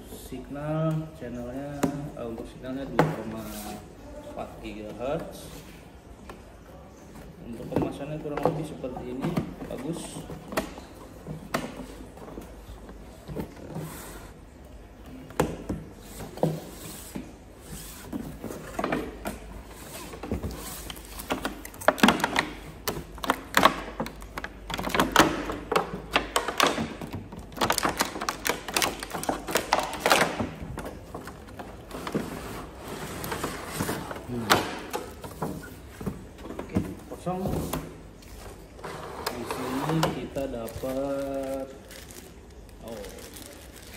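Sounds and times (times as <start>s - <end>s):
plastic packaging crinkling: 26.1s - 32.0s, 39.9s - 43.9s.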